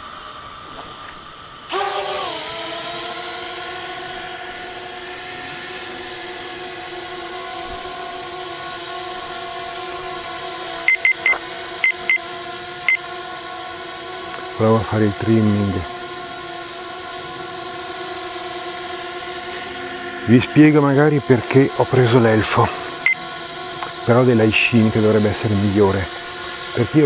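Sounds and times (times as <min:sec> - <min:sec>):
quadcopter motors whining: 0:00.0 - 0:27.0
short electronic beeps: 0:10.9 - 0:12.2.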